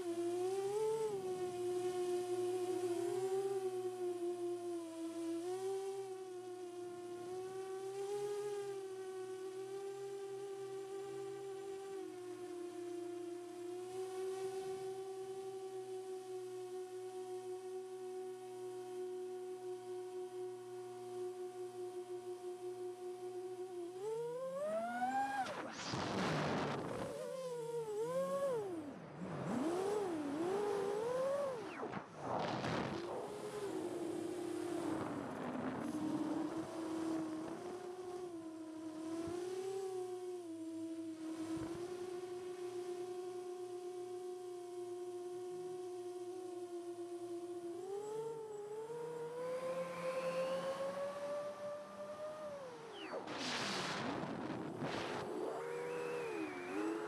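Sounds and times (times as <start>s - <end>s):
quadcopter propellers whining hum: 0.0s - 57.0s
wind noise rushes: 31.9s - 33.7s, 53.2s - 55.6s.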